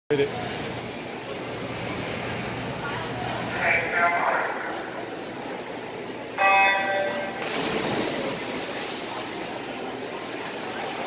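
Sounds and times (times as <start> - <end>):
water splashing: 7.4 - 11.0.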